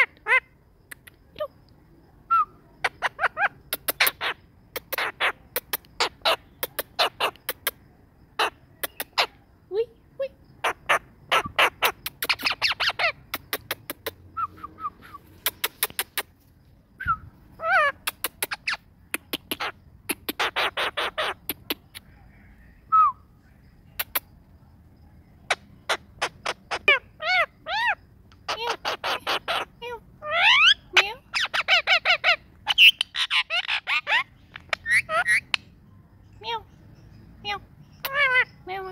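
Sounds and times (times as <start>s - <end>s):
parakeet calls: 0.0s - 0.6s, 2.3s - 7.8s, 8.4s - 9.4s, 10.6s - 16.3s, 17.6s - 22.1s, 25.5s - 38.9s.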